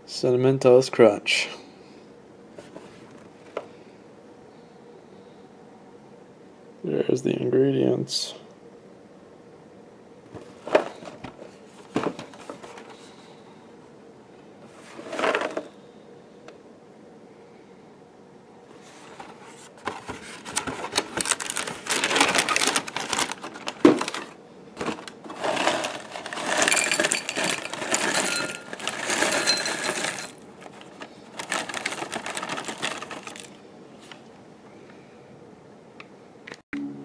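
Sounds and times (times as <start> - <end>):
cereal pouring into a bowl: 25.3 - 30.4.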